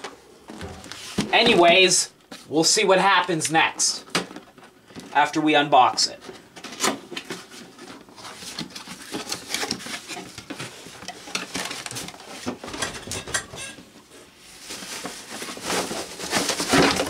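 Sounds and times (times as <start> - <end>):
cardboard box rustling and scraping: 0.5 - 1.8.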